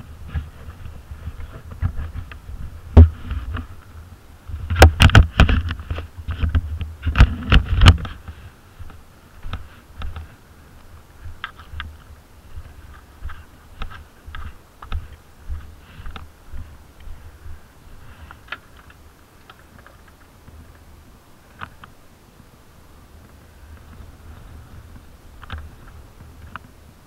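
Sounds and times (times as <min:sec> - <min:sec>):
atv engine rumble: 0:00.0 - 0:27.0
atv knocking and rattling: 0:04.7 - 0:08.3.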